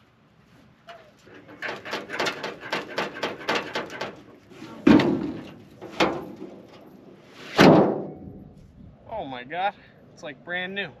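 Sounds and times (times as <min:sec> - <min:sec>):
metal car hood rattling and scraping: 0:01.2 - 0:08.5
metal car hood banging: 0:01.5 - 0:04.2, 0:04.8 - 0:06.8, 0:07.6 - 0:08.4.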